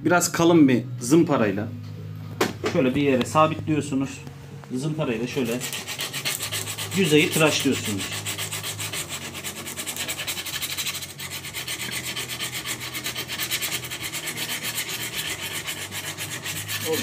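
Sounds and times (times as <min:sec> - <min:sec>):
sandpaper rubbing: 0:05.2 - 0:17.0.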